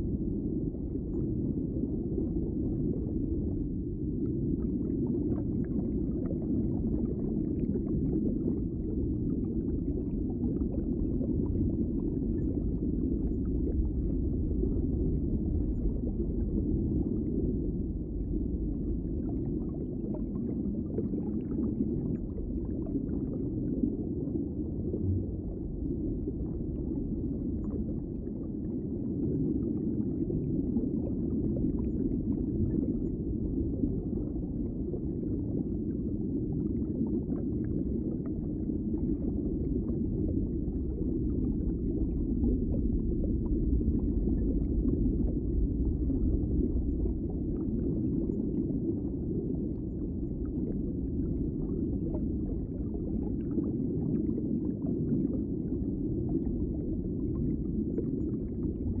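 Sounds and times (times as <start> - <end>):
muffled underwater rumble: 0.0 - 59.0
bubbling: 24.6 - 59.0.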